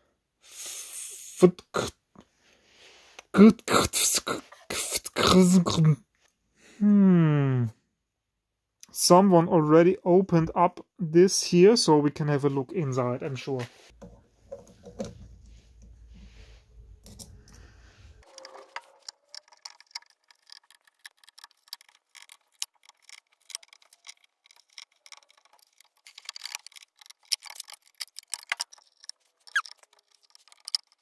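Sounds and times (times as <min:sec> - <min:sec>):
screwdriver undoing small screws: 0:18.3 - 0:31.0.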